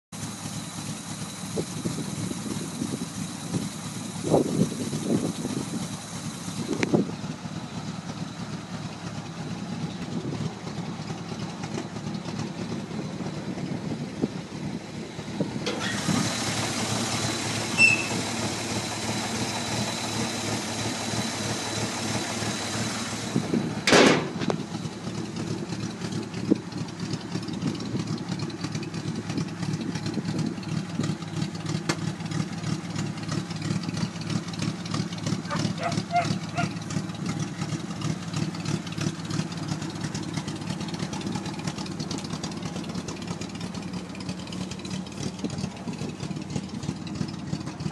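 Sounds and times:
truck engine idling: 0.1 - 47.9
thump: 23.8 - 24.6.

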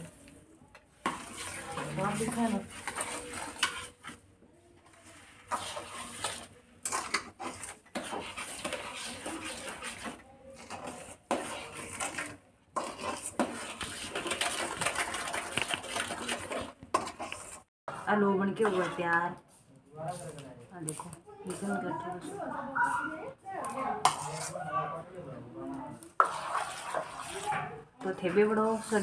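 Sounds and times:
metal ladle scraping metal pot: 1.0 - 4.2, 5.0 - 19.2, 24.0 - 24.6, 26.0 - 29.0.

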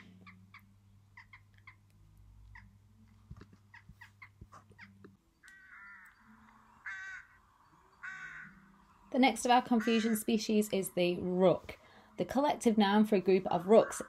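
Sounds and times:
jackdaw calls: 0.0 - 2.8, 3.7 - 10.8
rook cawing: 5.4 - 8.7, 9.6 - 10.4.

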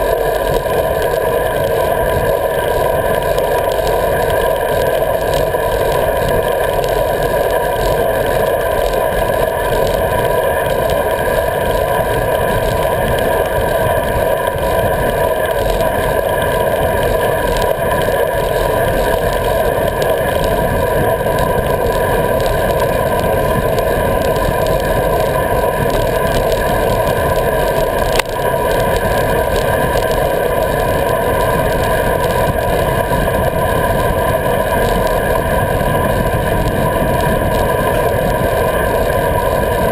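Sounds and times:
wind and road noise: 0.0 - 39.9.

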